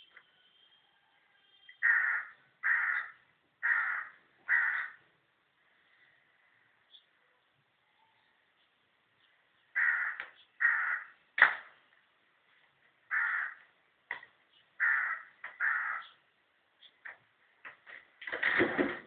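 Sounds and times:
crow cawing: 0:01.8 - 0:05.0, 0:09.8 - 0:11.2, 0:13.1 - 0:13.7, 0:14.8 - 0:16.2.

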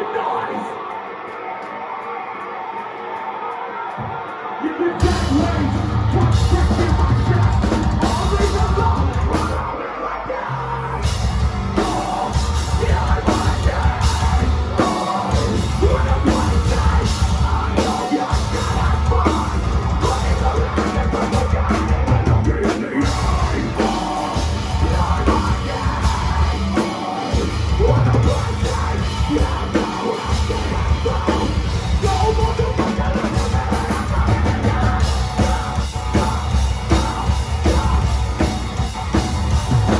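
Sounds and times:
screamed vocals: 0:00.0 - 0:11.2
distorted electric guitars: 0:00.0 - 0:39.9
drum kit: 0:04.0 - 0:09.8, 0:11.0 - 0:39.9
bass guitar: 0:05.0 - 0:39.9.

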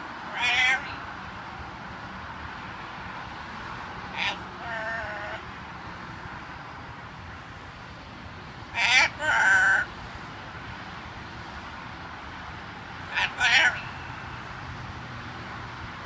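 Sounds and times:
parrot calling: 0:00.3 - 0:01.1, 0:04.1 - 0:05.4, 0:08.7 - 0:09.9, 0:13.1 - 0:14.5.

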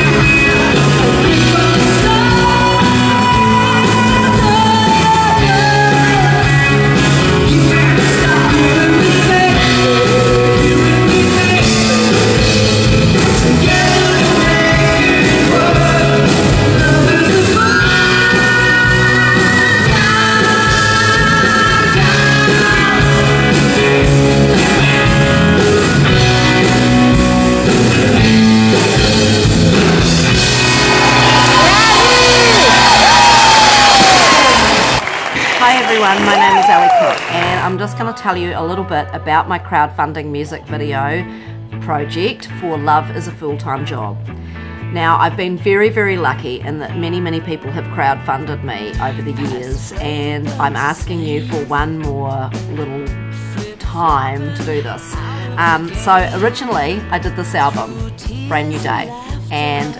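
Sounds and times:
rock band playing: 0:00.0 - 0:59.9
woman singing: 0:00.9 - 0:23.9, 0:35.6 - 0:41.3, 0:45.1 - 0:59.9.

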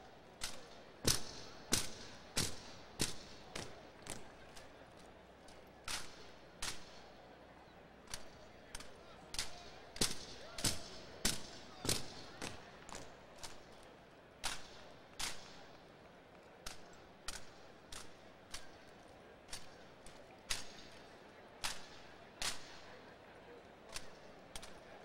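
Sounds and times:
rifles slapped and struck: 0:00.4 - 0:04.7, 0:05.5 - 0:07.1, 0:08.1 - 0:13.6, 0:14.4 - 0:15.6, 0:16.6 - 0:18.8, 0:19.5 - 0:22.9.

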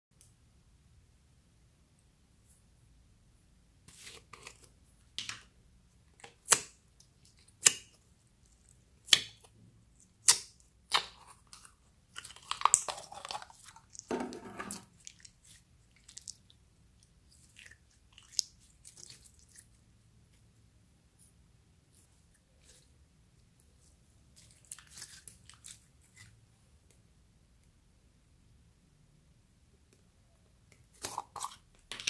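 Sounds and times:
slime crackling squelch: 0:06.2 - 0:14.1, 0:14.8 - 0:20.4, 0:21.9 - 0:26.5.

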